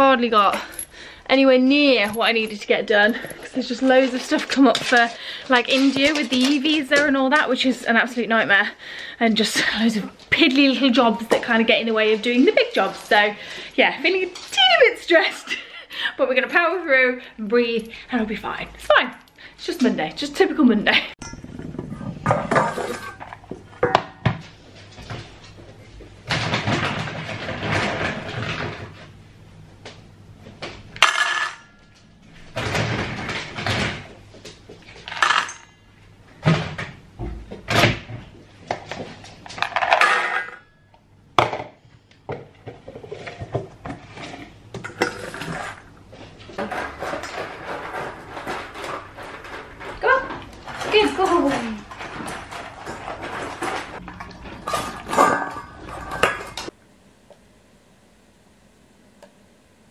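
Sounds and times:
metal bowls clanking on stone: 21.2s - 24.2s, 50.9s - 56.7s.

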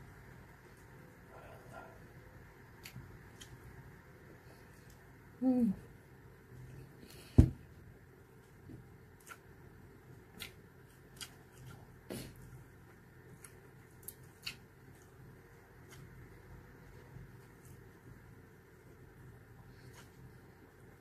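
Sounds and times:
chewing with wet clicks: 9.2s - 9.7s, 10.3s - 12.0s, 13.3s - 16.4s.

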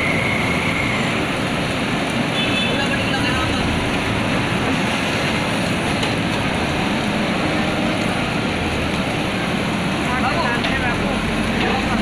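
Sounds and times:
diesel engine running: 3.0s - 12.0s.

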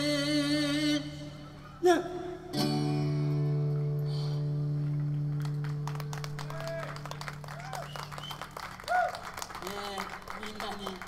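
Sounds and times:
acoustic guitar chord ringing: 2.3s - 5.8s
audience applause: 5.1s - 11.0s.

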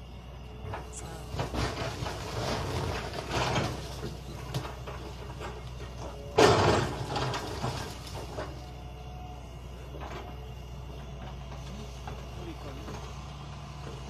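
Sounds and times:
excavator engine running: 0.0s - 14.0s
debris scraping and clattering: 0.7s - 8.7s.

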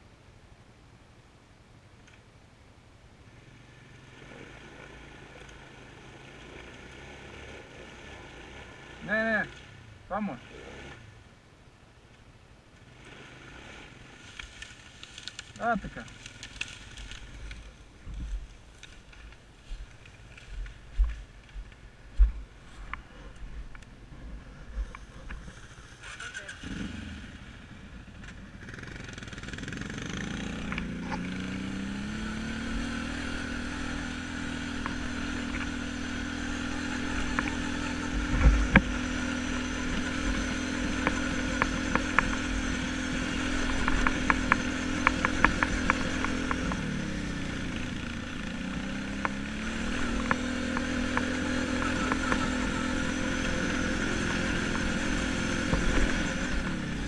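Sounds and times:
quad bike engine running: 3.3s - 11.1s, 24.2s - 57.0s.

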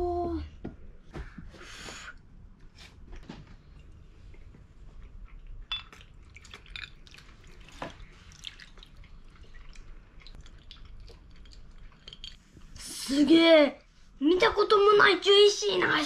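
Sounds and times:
liquid trickling and dripping: 4.5s - 12.4s.

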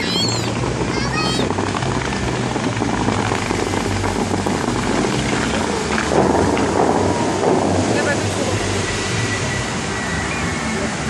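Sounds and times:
fountain jets splashing: 0.0s - 11.0s.

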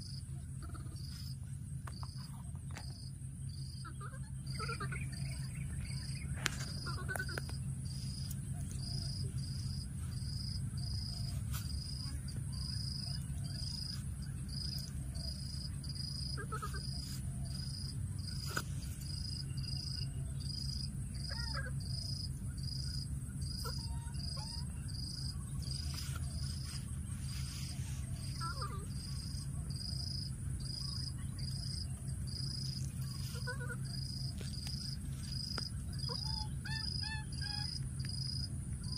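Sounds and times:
insect chirping: 0.0s - 38.9s
faint short animal calls: 16.1s - 17.7s, 32.7s - 35.0s.

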